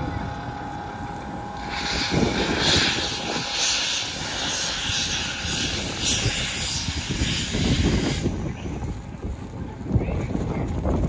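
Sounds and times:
locomotive low rumble: 0.0s - 11.0s
steam bursts hissing: 1.5s - 8.9s.

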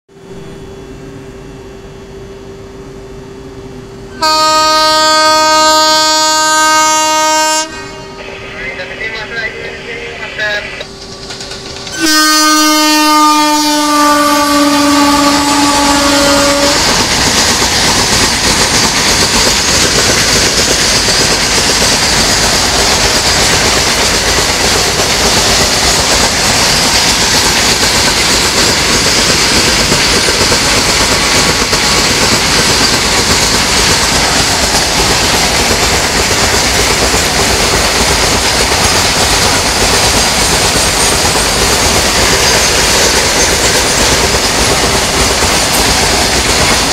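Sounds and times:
freight train rumbling past: 0.1s - 46.9s
train horn blast: 4.1s - 8.4s, 11.9s - 17.0s
train wheel clatter: 10.8s - 46.9s.

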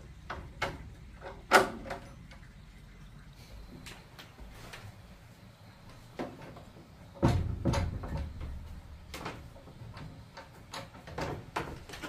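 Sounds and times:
irregular knocks and clicks: 6.2s - 12.0s.

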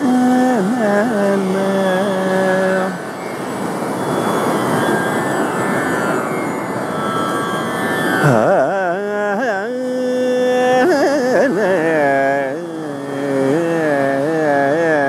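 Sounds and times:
man singing wordless melody: 0.0s - 3.2s, 8.2s - 15.0s
ocean surf roar: 0.1s - 15.0s.

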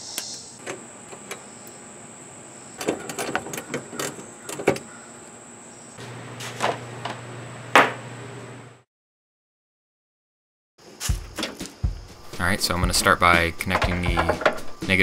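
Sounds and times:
hands and tools clicking and knocking: 13.6s - 14.8s
mud flap knocking on workbench: 13.8s - 14.7s.

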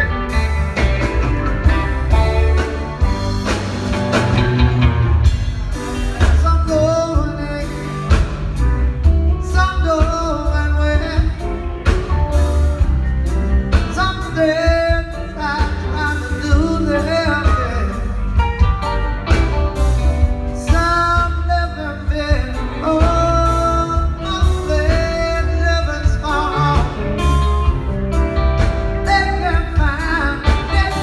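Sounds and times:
heavy bass and drum beat: 0.0s - 31.0s
live rock band playing: 0.0s - 31.0s
man singing lead vocal: 5.8s - 12.1s, 13.7s - 18.4s, 20.5s - 27.5s, 28.6s - 31.0s.

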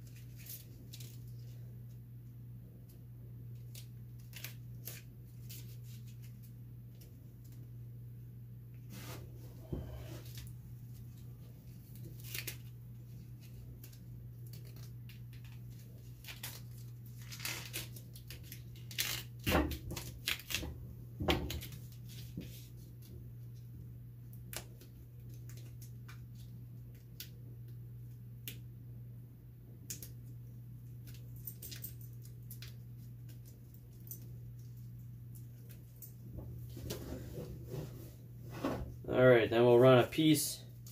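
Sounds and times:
duct tape crinkling: 0.0s - 1.6s, 3.5s - 7.7s, 10.2s - 23.6s, 24.3s - 28.6s.

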